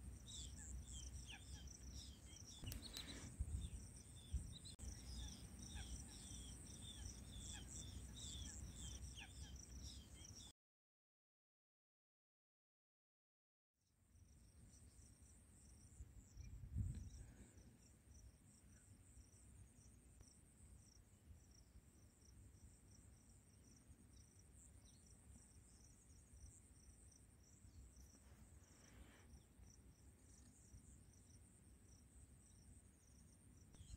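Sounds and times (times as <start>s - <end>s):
insects chirping: 0.0s - 10.5s, 14.2s - 33.9s.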